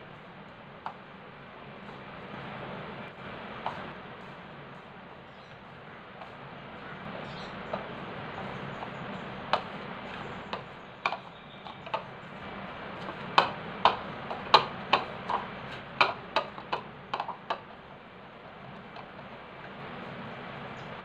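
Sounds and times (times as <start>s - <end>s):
taps against a ceramic bowl: 13.0s - 17.6s.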